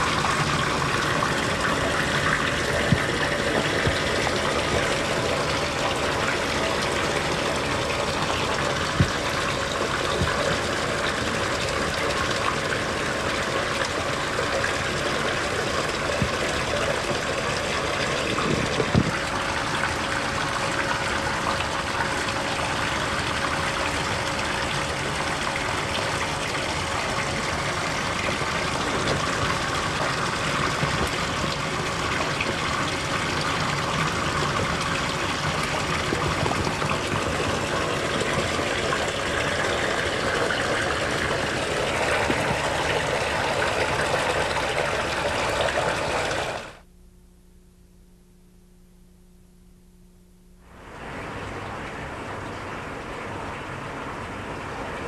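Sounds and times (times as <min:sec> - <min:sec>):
running water: 0:00.0 - 0:46.8, 0:50.7 - 0:55.0
faint steady hum: 0:00.0 - 0:55.0.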